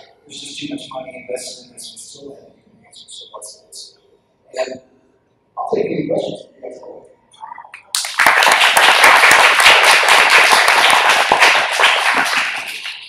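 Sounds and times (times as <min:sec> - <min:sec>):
audience applause: 0:07.9 - 0:13.0.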